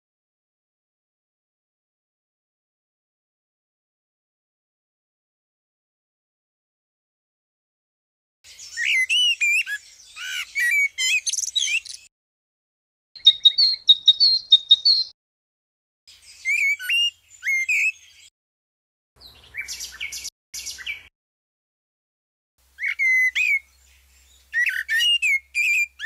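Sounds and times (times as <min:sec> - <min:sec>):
blackbird singing: 0:08.5 - 0:12.1, 0:13.2 - 0:15.2, 0:16.1 - 0:18.3, 0:19.2 - 0:21.1, 0:22.7 - 0:26.0.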